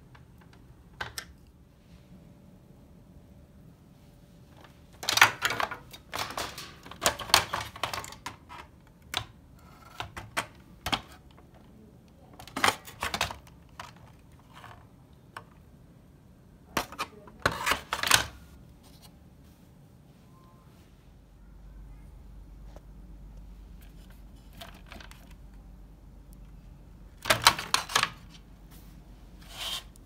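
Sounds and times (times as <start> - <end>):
plastic clicking and scraping: 4.6 - 15.6, 23.8 - 25.6, 27.2 - 28.4.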